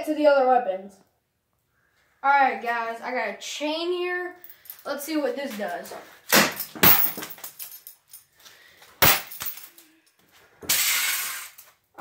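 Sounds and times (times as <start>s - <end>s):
chain smashing onto e-reader: 6.3s - 8.1s, 9.0s - 9.8s.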